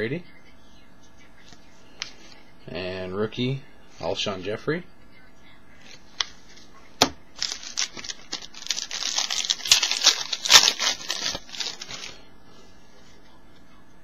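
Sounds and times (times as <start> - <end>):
foil wrapper tearing and crinkling: 7.4 - 12.2.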